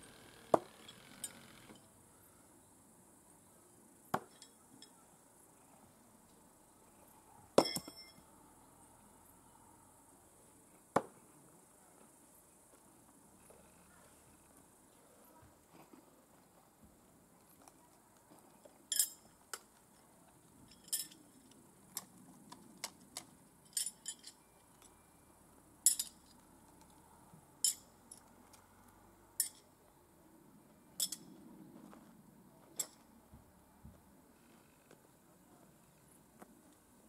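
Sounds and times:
metal knives clinking: 29.4s - 29.7s, 31.0s - 31.2s.

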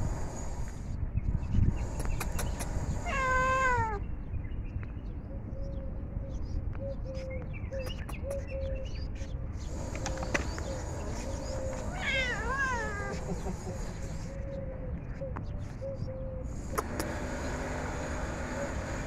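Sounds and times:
cat meowing: 3.0s - 4.0s, 11.8s - 13.2s.

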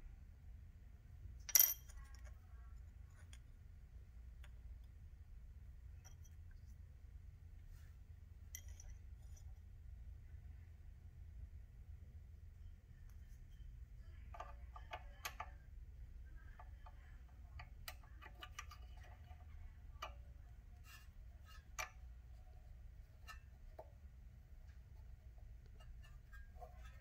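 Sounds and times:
low steady hum: 0.0s - 27.0s
metallic clicks and taps: 14.1s - 15.7s, 16.5s - 20.4s, 21.5s - 22.1s.

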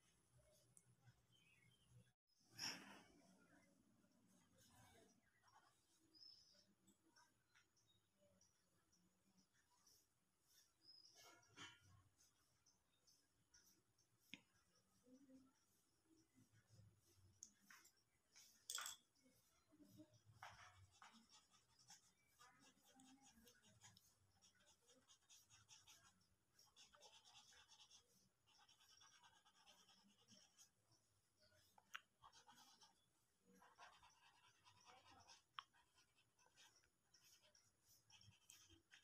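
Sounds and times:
pencil scratching on paper: 4.2s - 7.9s, 8.7s - 39.0s.

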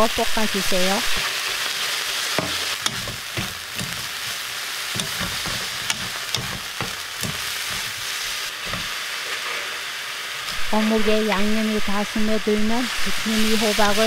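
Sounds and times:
food sizzling in a pan: 0.0s - 14.0s
wooden spatula knocking on pan: 2.4s - 4.0s, 5.0s - 7.5s.

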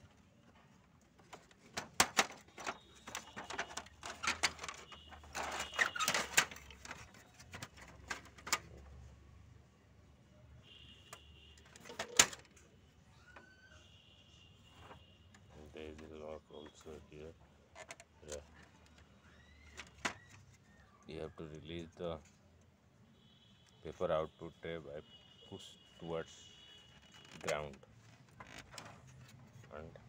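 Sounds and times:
plastic printer door rattling: 1.2s - 8.8s, 11.7s - 12.5s, 27.3s - 27.7s.

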